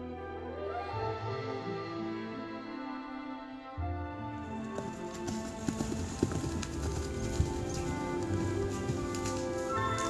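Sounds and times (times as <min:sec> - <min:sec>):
background music: 0:00.0 - 0:10.0
pony hoofbeats cantering: 0:04.5 - 0:10.0.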